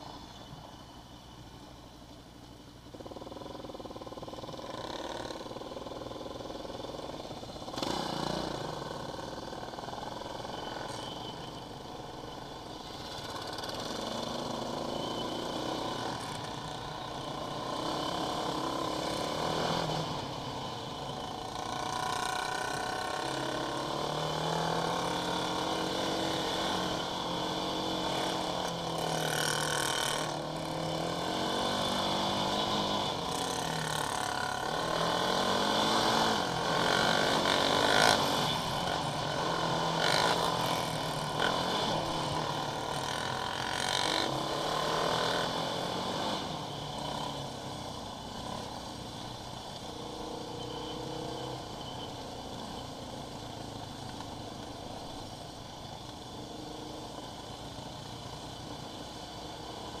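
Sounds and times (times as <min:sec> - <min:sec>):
quad bike engine revving: 0:07.6 - 0:11.0, 0:13.0 - 0:47.8.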